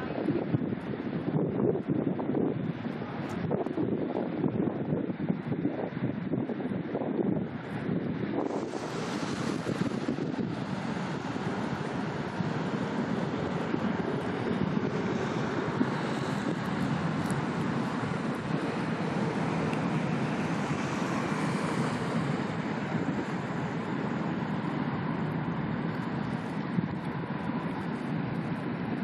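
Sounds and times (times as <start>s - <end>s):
low rumble of engines: 0.0s - 29.0s
wash of water: 8.4s - 27.8s.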